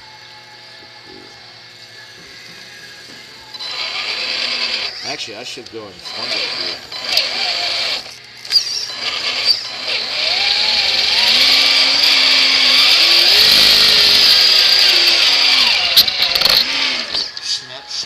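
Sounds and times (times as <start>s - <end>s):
toy truck motor whining: 3.5s - 5.4s, 6.0s - 17.6s.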